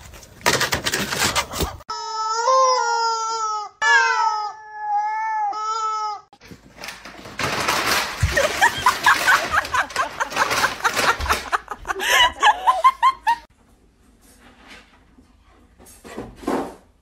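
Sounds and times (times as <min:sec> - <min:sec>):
rustling scraping noise: 0:00.0 - 0:01.9, 0:14.0 - 0:16.9
rubber chicken toy screaming: 0:01.9 - 0:06.2
people laughing: 0:08.2 - 0:13.5.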